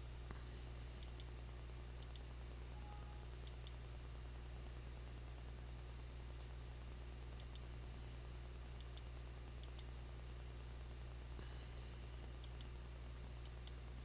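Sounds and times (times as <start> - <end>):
low electrical hum: 0.0 - 14.0
computer mouse clicking: 2.0 - 2.3, 7.4 - 7.7, 8.8 - 9.9, 12.4 - 12.7, 13.4 - 13.8.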